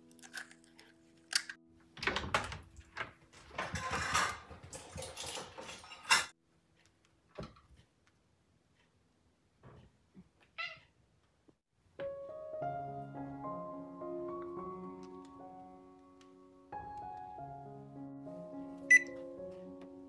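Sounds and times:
clattering and clicking: 0:01.4 - 0:06.4.

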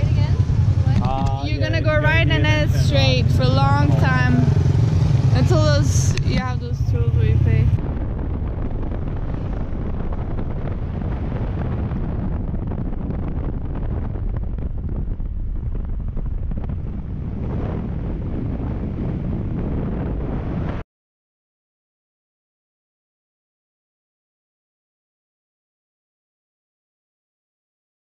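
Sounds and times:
wind buffeting microphone: 0:00.0 - 0:20.8.

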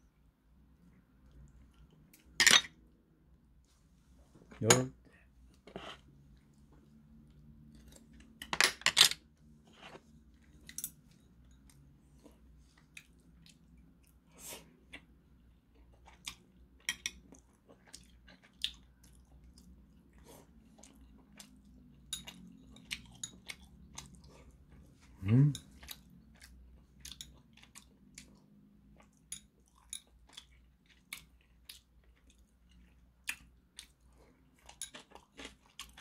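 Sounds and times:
faint low hum: 0:00.0 - 0:36.0
person chewing: 0:11.7 - 0:36.0.

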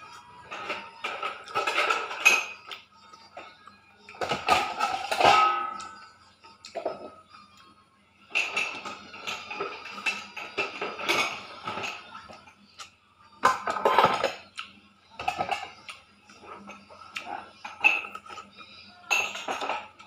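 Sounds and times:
chewing and lip-smacking: 0:14.5 - 0:14.8.

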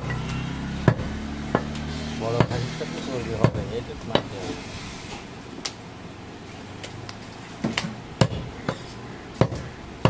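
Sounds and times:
knife chopping meat on wood: 0:00.9 - 0:01.8, 0:03.4 - 0:04.3, 0:09.4 - 0:09.7.

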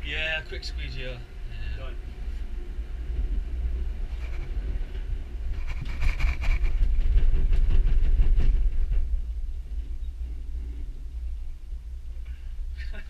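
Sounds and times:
gondola cabin rumbling and rattling: 0:00.0 - 0:13.0
rapid clacks of wheels: 0:03.7 - 0:11.0.

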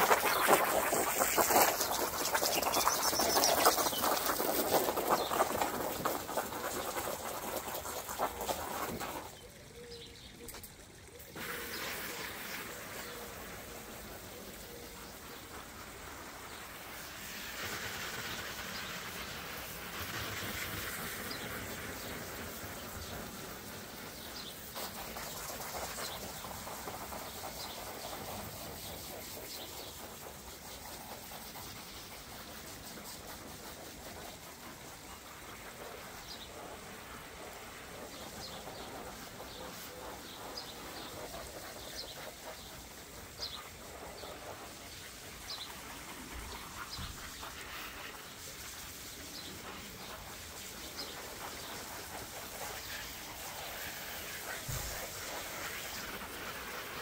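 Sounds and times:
hose spraying water: 0:00.0 - 0:57.0
birds chirping faintly: 0:00.1 - 0:17.1.

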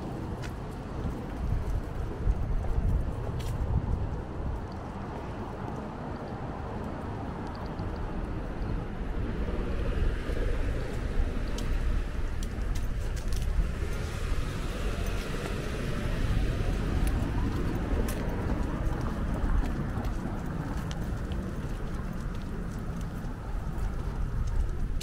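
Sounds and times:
wind buffeting microphone: 0:00.0 - 0:25.0
faint clicks and jingles: 0:06.9 - 0:08.7.

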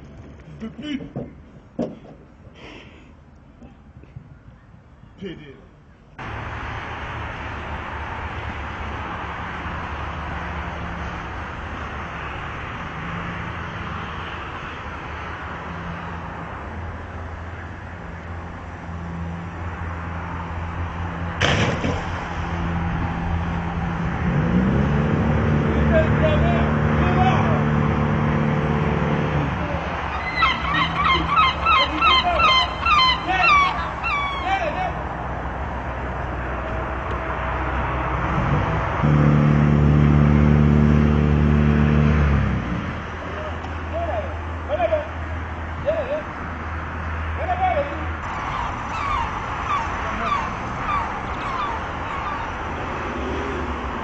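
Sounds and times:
birds calling: 0:30.0 - 0:35.0, 0:48.2 - 0:53.7
gull cries: 0:30.1 - 0:35.0, 0:48.2 - 0:52.9
steady background noise: 0:42.7 - 0:54.0.

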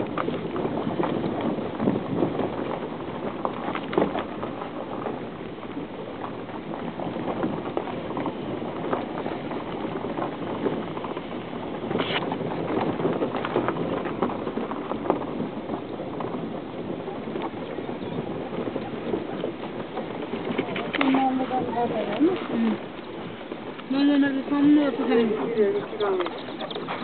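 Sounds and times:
tyres crunching on gravel: 0:00.0 - 0:27.0.

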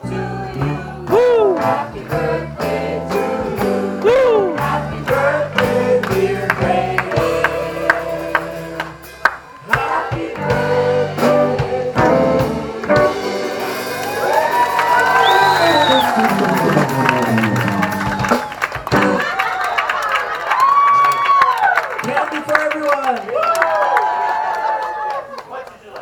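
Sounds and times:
person singing: 0:00.0 - 0:09.0
live band playing: 0:00.0 - 0:19.5.

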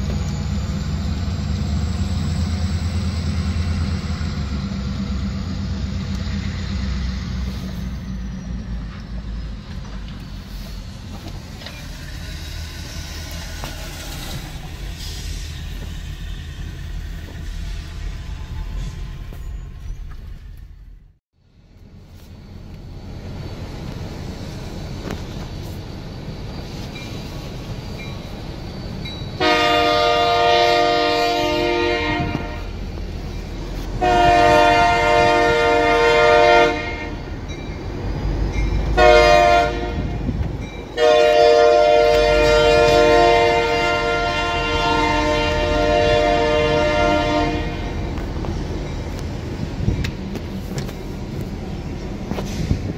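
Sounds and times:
locomotive air horn blasts: 0:29.4 - 0:32.8, 0:33.9 - 0:37.3, 0:38.9 - 0:40.4, 0:41.0 - 0:48.0.

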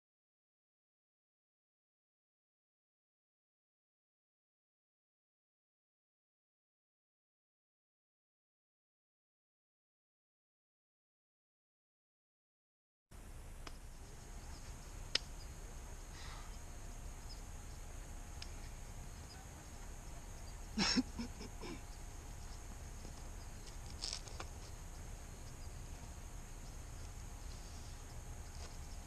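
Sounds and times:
faint high hiss: 0:13.2 - 0:29.0.

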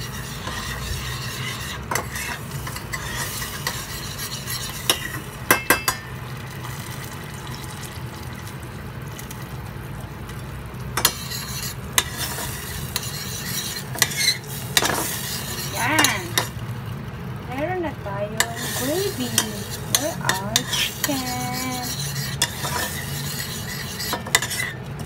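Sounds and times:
steady low hum: 0:00.0 - 0:25.0
metal spoon clinking on pot: 0:04.8 - 0:06.2, 0:11.0 - 0:12.2.

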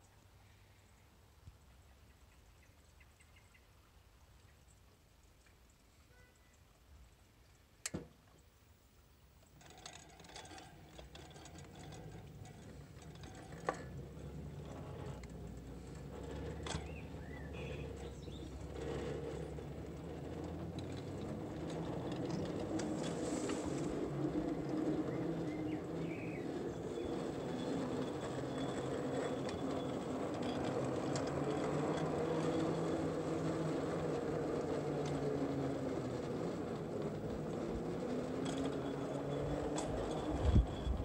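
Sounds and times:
sharp clicks on track: 0:09.4 - 0:40.9
small locomotive running on rails: 0:09.4 - 0:41.0.

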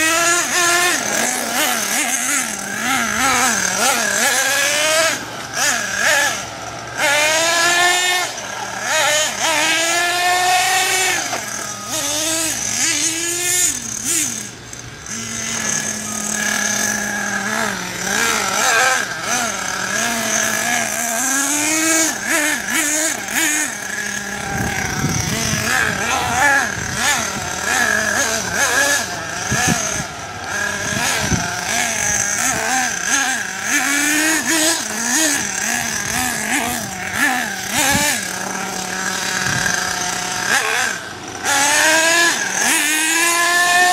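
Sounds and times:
toy car motor revving: 0:00.0 - 0:43.9.

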